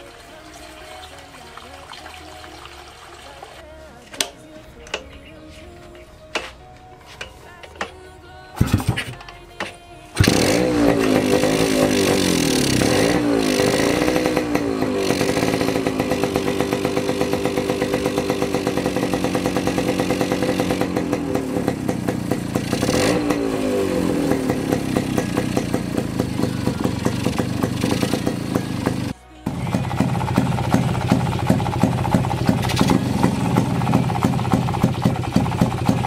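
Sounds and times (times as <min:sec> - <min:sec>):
two-stroke motorcycle engine revving: 0:08.6 - 0:09.2, 0:10.2 - 0:36.0.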